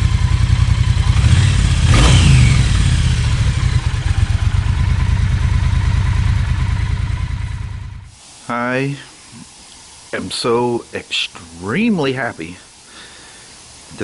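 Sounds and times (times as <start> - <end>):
motorcycle engine idling: 0.0 - 8.2.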